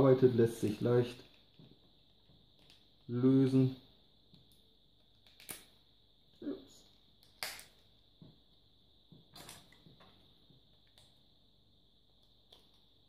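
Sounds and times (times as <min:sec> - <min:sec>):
faint high whine: 0:00.0 - 0:13.0
plastic parts clicking: 0:04.3 - 0:05.7.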